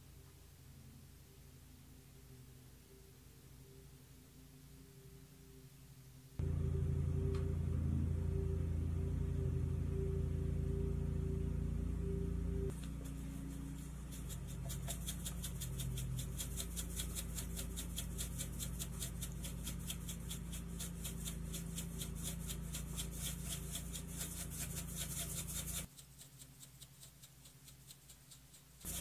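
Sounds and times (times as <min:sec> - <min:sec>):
low hum: 0:00.0 - 0:25.9
shaker bottle rattling: 0:12.8 - 0:29.0
faint ticks: 0:25.9 - 0:29.0.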